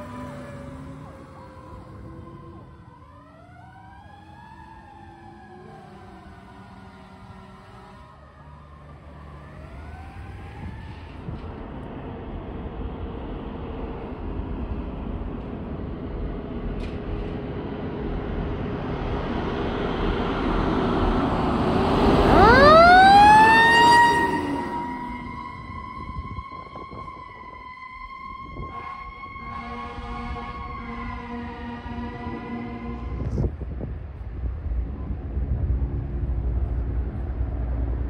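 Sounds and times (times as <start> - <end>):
fire engine siren: 0.0 - 11.7, 19.8 - 33.8
truck engine and tyres: 0.0 - 38.0.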